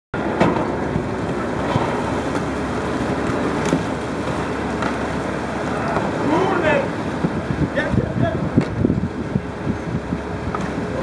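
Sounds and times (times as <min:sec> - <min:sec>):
paddle splashes: 0:00.2 - 0:07.8
choppy water rushing: 0:00.2 - 0:11.0
wind on microphone: 0:00.2 - 0:11.0.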